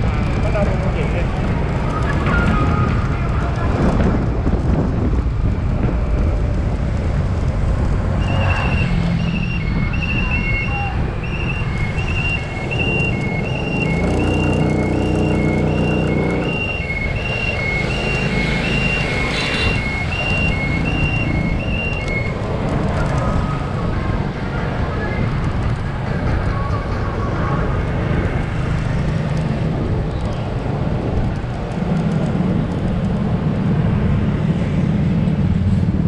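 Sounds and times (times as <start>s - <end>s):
engine hum rising: 0.0s - 36.0s
street traffic engines: 0.0s - 36.0s
reversing alarm beeping: 8.2s - 22.4s.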